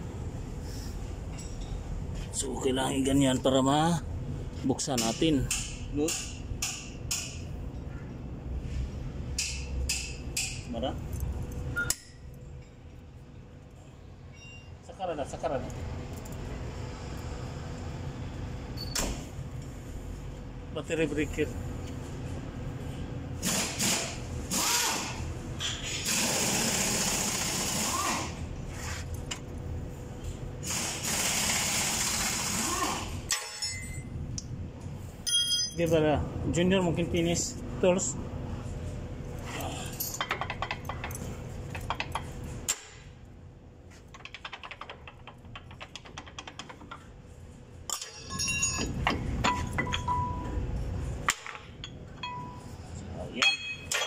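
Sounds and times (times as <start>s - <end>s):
brake pads clicking and rattling: 44.1s - 47.1s.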